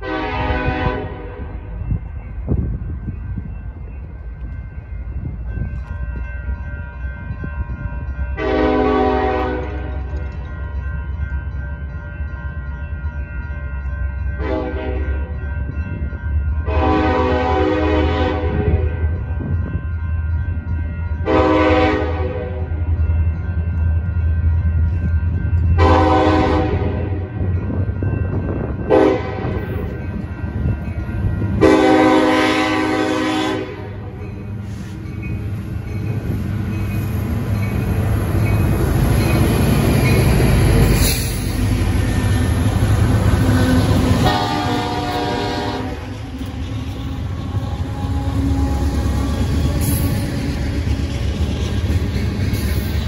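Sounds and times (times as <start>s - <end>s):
train horn blasts: 0.0s - 1.5s, 8.4s - 10.1s, 14.4s - 15.2s, 16.7s - 19.0s, 21.2s - 22.6s, 25.8s - 27.3s, 28.9s - 29.7s, 31.6s - 34.2s, 43.5s - 50.2s
freight cars rolling on rails: 0.0s - 53.0s
locomotive engines rumbling: 0.0s - 53.0s.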